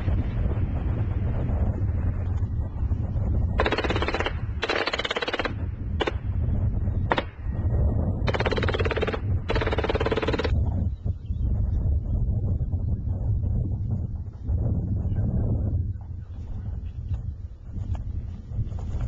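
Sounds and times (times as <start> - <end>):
wind rumble on microphone: 0.0 - 19.0
automatic gunfire bursts: 3.6 - 6.2, 7.1 - 7.4, 8.3 - 10.5.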